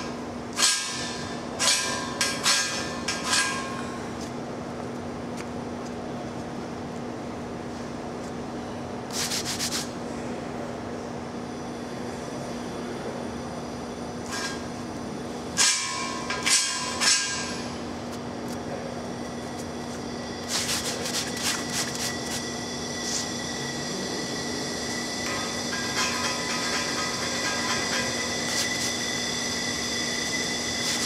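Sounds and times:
metallic ring: 0.0 - 4.1, 14.2 - 14.8, 15.5 - 17.9, 19.5 - 31.0
steady hum: 0.0 - 31.0
metal scraper scraping pipe: 20.4 - 22.5, 25.3 - 29.0, 30.8 - 31.0.

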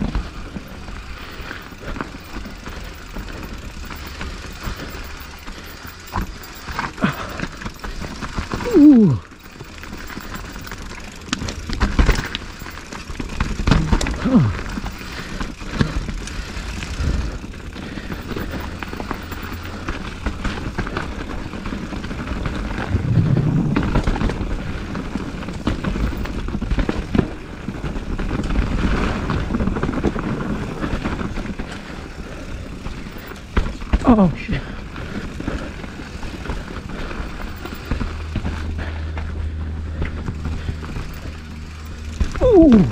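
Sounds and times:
bike knocking on bumps: 0.0 - 31.9, 32.6 - 42.6
bike tyres rumbling over rough ground: 0.0 - 42.9.

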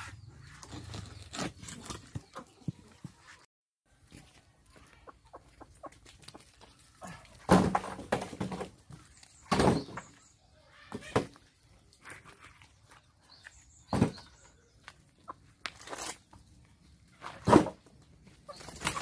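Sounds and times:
scraping over soil and bricks: 0.0 - 19.0
chickens clucking: 2.0 - 3.4, 4.2 - 8.0, 14.1 - 15.5, 17.2 - 19.0.

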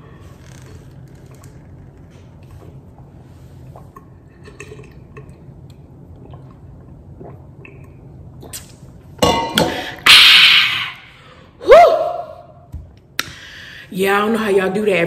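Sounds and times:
person swallowing liquid: 0.9 - 9.0.

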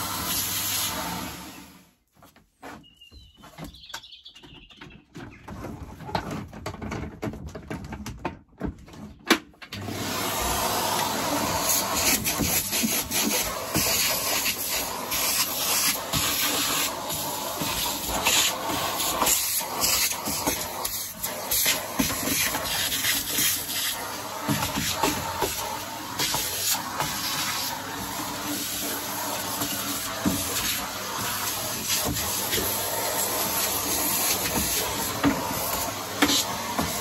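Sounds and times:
vacuum cleaner air rush: 0.0 - 1.9, 9.8 - 37.0
vacuum nozzle scraping grit: 10.0 - 37.0.

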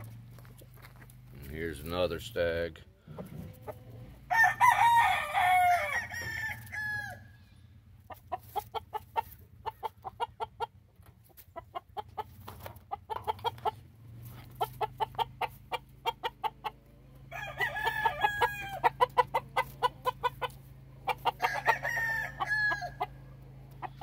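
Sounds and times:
chickens clucking: 0.0 - 4.3, 7.4 - 24.0
rooster crowing: 4.3 - 7.4, 17.3 - 19.0, 21.2 - 23.2.

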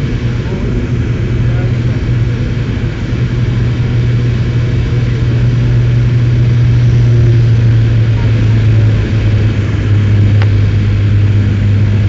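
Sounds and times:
airliner engines droning in cabin: 0.0 - 12.0.

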